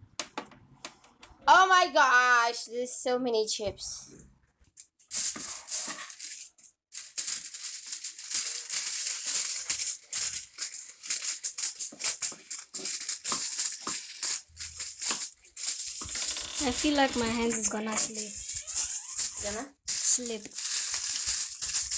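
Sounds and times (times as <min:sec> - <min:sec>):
aluminium foil crinkling: 0:04.8 - 0:21.9.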